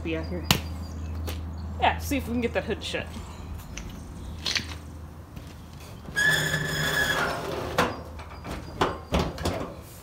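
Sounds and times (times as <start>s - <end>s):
high squeak-like tone: 6.1s - 9.3s.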